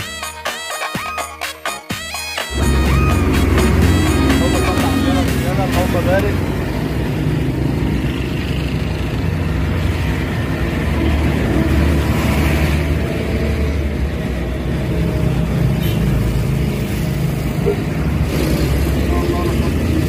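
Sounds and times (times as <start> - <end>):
engine running: 2.5 - 12.1, 17.0 - 20.0.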